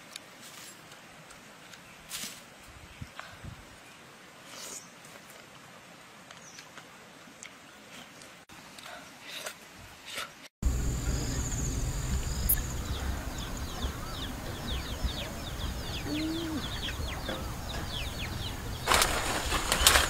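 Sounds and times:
birds chirping: 10.6s - 20.0s
low wind rumble: 10.6s - 20.0s
high-pitched insect whine: 10.7s - 13.6s
brief rustle: 18.8s - 20.0s.

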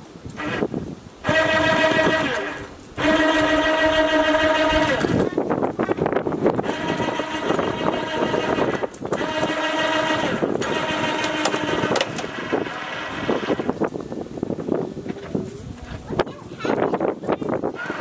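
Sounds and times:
chain hoist motor whining: 0.4s - 5.3s, 6.6s - 13.8s, 17.7s - 18.0s.

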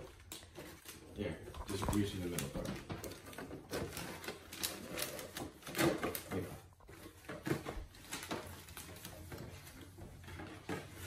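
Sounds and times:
gift wrap crinkling: 0.0s - 11.0s.

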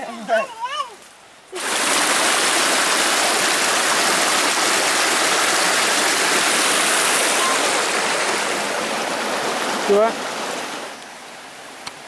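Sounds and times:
stream rushing over rocks: 1.5s - 12.0s.

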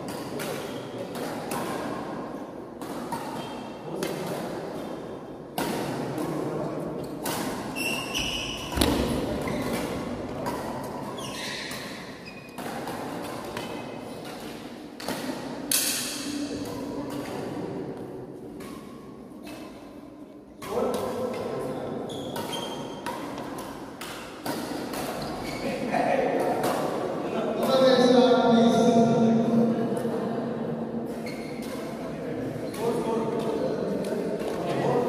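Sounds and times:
shuttlecock hits: 0.0s - 4.6s, 5.5s - 6.4s, 7.1s - 17.6s, 22.3s - 25.4s
shoe squeaks: 7.7s - 10.0s, 11.1s - 12.6s, 22.0s - 23.0s, 25.1s - 25.8s, 31.2s - 31.9s
murmur of voices: 25.6s - 35.0s.

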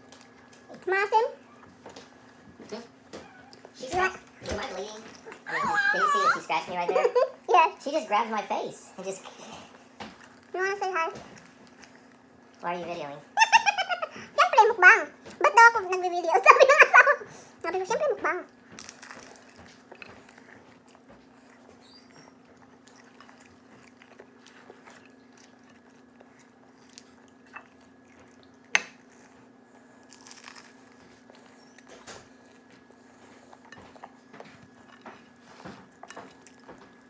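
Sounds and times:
crunchy chewing: 9.3s - 10.6s, 18.4s - 37.0s.

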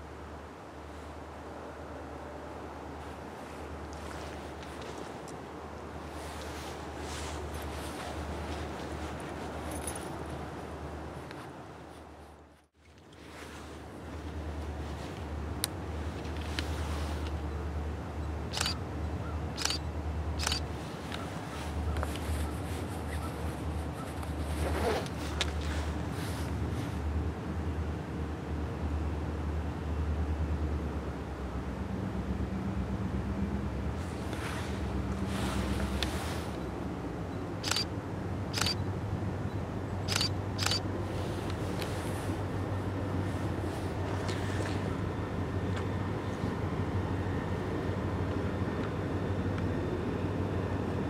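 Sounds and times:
distant diesel locomotive rumble: 13.2s - 51.0s
sharp clicks: 18.5s - 18.8s, 19.6s - 19.8s, 20.4s - 21.2s, 37.6s - 37.9s.

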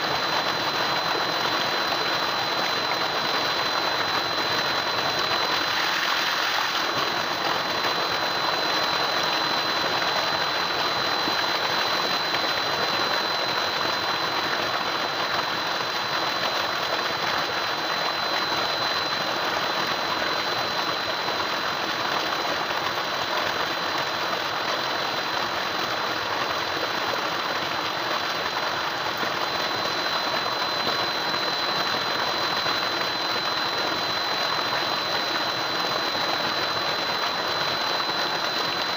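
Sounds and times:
high-pitched whine: 0.0s - 38.9s.

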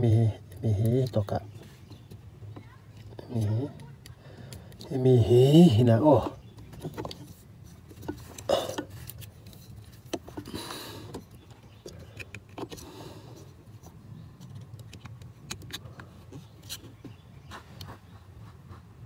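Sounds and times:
plastic connectors clicking: 14.4s - 16.0s.

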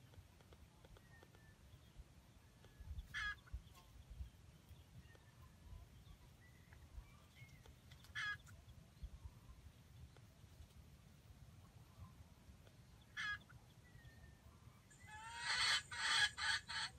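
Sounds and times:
faint whistled bird calls: 0.9s - 4.2s
junglefowl calling: 3.1s - 3.6s, 8.1s - 8.5s, 13.1s - 13.6s, 14.9s - 16.9s.

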